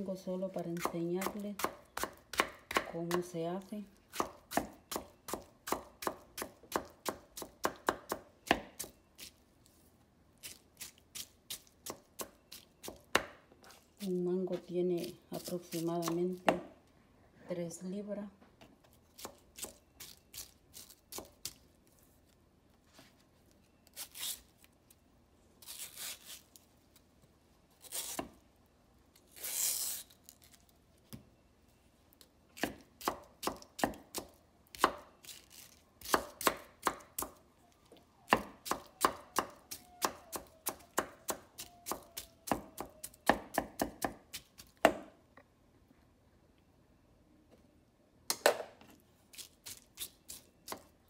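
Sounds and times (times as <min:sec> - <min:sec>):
knife chopping on wooden board: 0:00.8 - 0:03.2.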